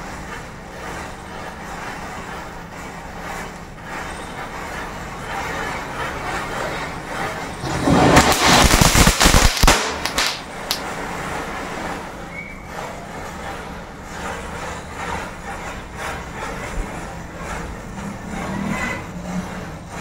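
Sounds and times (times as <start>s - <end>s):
matchstick chain crackling and hissing: 6.5s - 12.3s
firecrackers popping: 7.6s - 11.0s.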